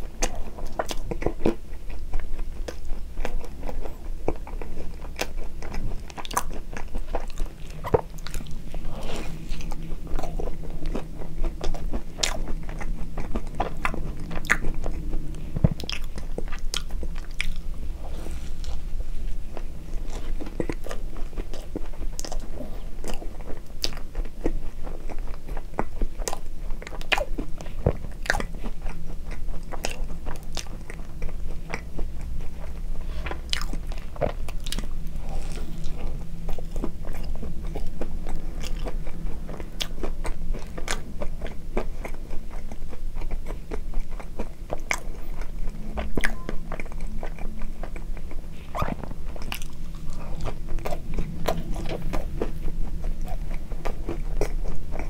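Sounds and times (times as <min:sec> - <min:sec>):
chewing soft bread: 0:00.0 - 0:55.0.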